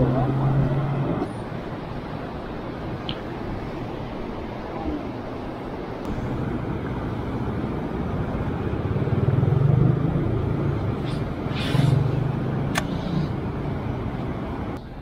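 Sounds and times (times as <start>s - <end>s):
road traffic engine noise: 0.0s - 15.0s
sharp click: 12.7s - 13.0s.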